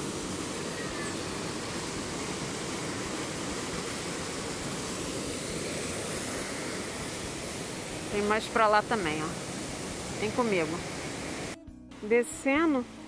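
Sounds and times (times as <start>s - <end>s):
waterfall pouring over rocks: 0.0s - 11.6s.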